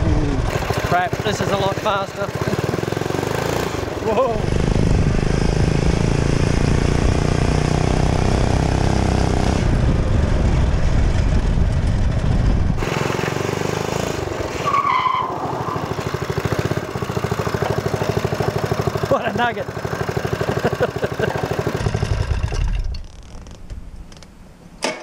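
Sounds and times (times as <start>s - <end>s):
small engine running: 0.0s - 9.2s, 12.8s - 14.6s, 15.7s - 22.9s.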